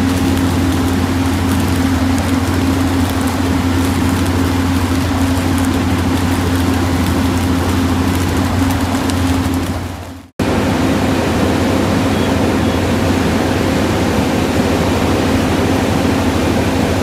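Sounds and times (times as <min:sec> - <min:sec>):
sparks crackling: 0:00.0 - 0:10.3
welding machine hum: 0:00.0 - 0:17.0.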